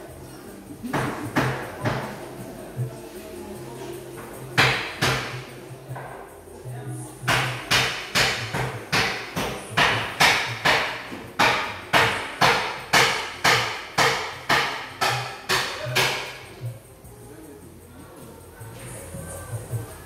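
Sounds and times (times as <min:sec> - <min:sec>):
sharp percussive knocks: 0:04.6 - 0:06.2, 0:07.2 - 0:16.5.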